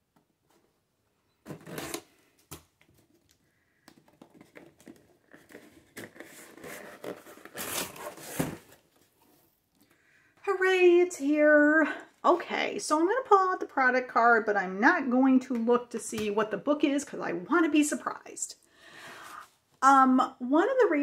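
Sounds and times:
cardboard scraping and rustling: 1.4s - 2.1s, 4.1s - 9.4s
packing tape ripping: 1.5s - 2.7s, 4.4s - 8.8s.

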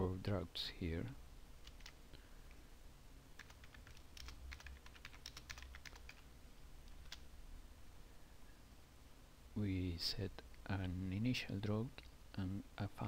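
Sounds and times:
keyboard typing: 1.6s - 2.0s, 3.4s - 6.2s, 6.9s - 7.2s.

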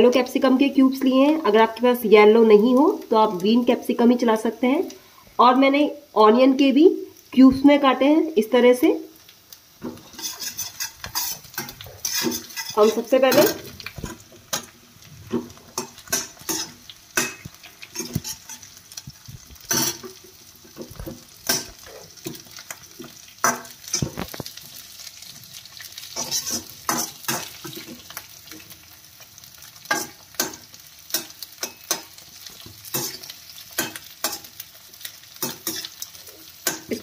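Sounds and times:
onions sizzling in hot oil: 0.0s - 37.0s
metal skimmer scraping pan: 9.9s - 14.2s.

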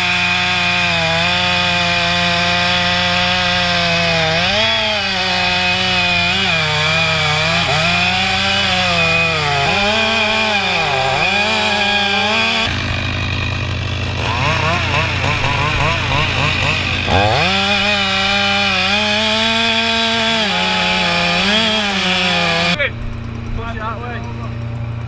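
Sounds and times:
chainsaw cutting wood: 0.0s - 23.9s.

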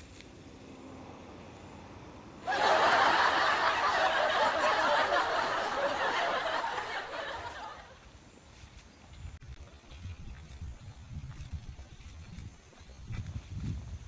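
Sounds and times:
crowd laughing: 2.4s - 8.0s.

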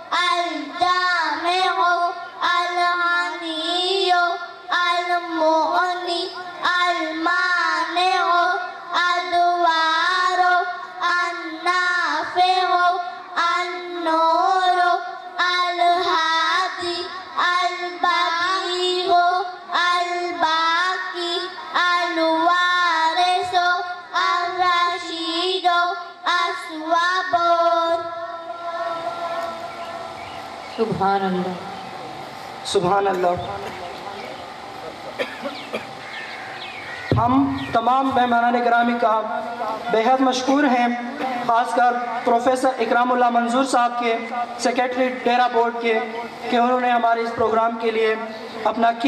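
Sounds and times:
child singing: 0.1s - 29.7s.

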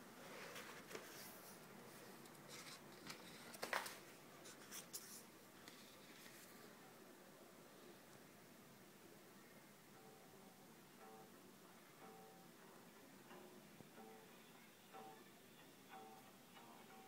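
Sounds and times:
magazine pages rustling: 0.3s - 1.6s, 2.3s - 6.6s.

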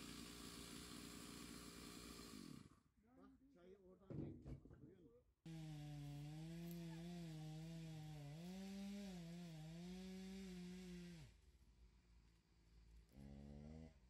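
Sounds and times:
chainsaw engine running: 0.0s - 2.8s, 5.5s - 11.4s.

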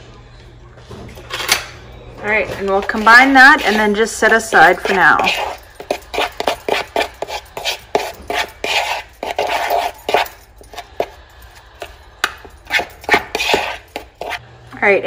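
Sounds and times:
spoon scraping plastic bowl: 2.5s - 14.4s.

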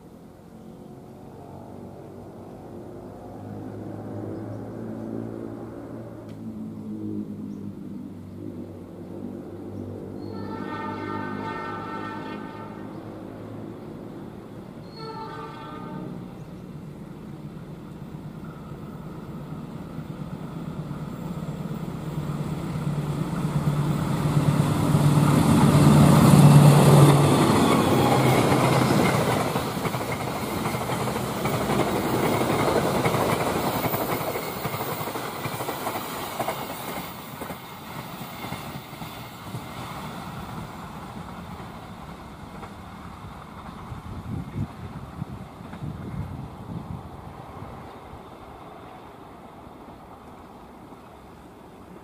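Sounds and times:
diesel locomotive engine hum: 0.0s - 52.0s
train wheels clattering on rails: 22.6s - 46.4s.

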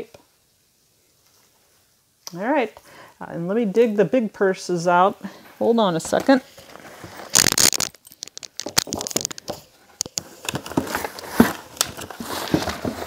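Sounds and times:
handbags rustling: 5.6s - 13.0s
clicks knocks and crinkles: 6.1s - 13.0s.

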